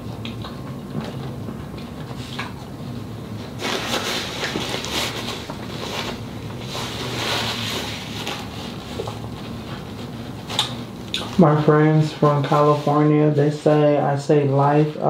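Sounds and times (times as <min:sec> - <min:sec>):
paper napkin rustling: 0:03.3 - 0:15.0.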